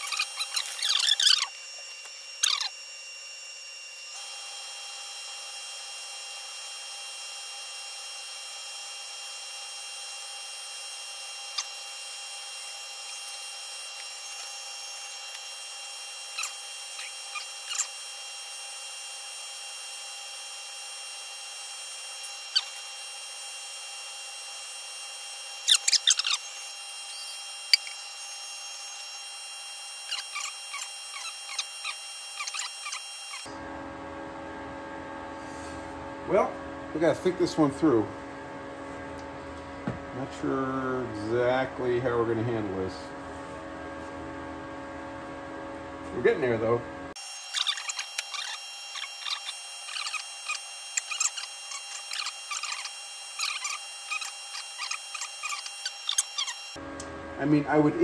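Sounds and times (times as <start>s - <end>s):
steady machine whine: 0.0s - 58.0s.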